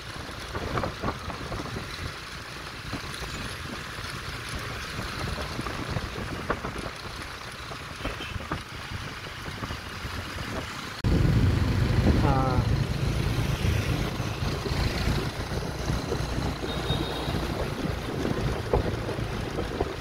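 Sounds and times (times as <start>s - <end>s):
city street traffic: 0.0s - 20.0s
wind on microphone: 8.3s - 20.0s.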